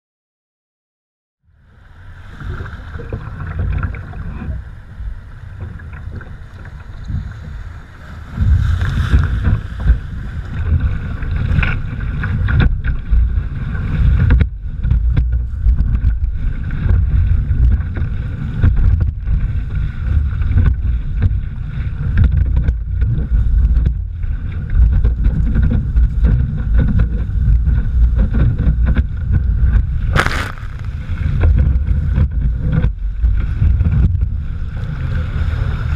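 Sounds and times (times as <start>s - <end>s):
wind buffeting microphone: 1.5s - 35.9s
water rushing and splashing: 1.6s - 19.4s, 29.6s - 35.9s
wave breaking in a splash: 1.7s - 11.6s, 30.0s - 32.2s.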